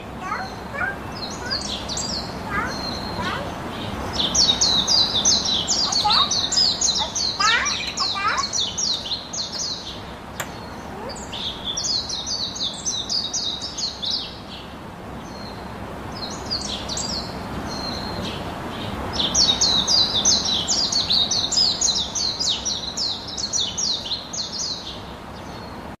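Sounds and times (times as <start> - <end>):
budgerigars chirping: 0.0 - 14.4.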